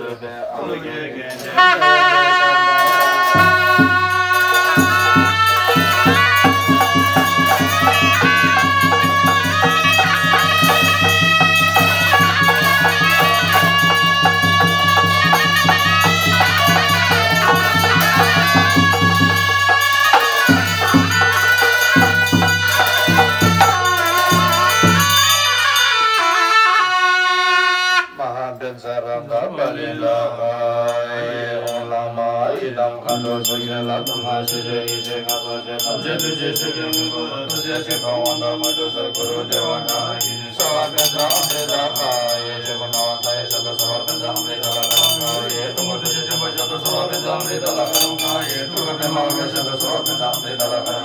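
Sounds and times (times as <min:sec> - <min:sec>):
cymbals: 0:01.2 - 0:28.2, 0:30.8 - 0:51.0
reed horn wavering melody: 0:01.4 - 0:28.3.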